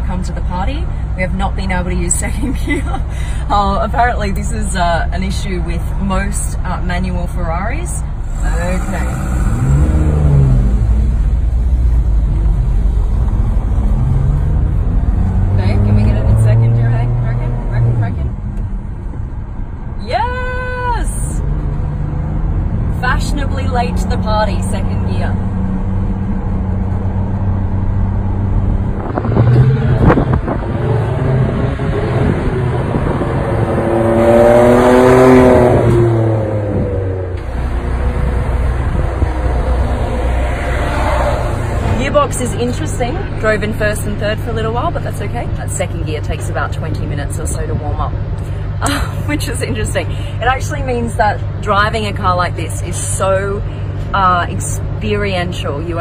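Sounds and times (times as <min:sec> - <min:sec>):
car engine heard from cabin: 0:00.0 - 0:56.0
car driving past: 0:21.4 - 0:43.4.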